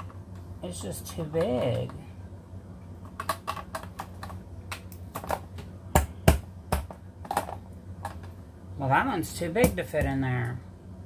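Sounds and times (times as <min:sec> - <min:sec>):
sharp plastic knocks: 0:03.1 - 0:08.2.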